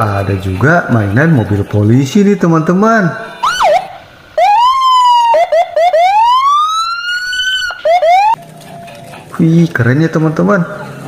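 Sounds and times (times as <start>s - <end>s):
police siren whooping: 3.4s - 8.4s.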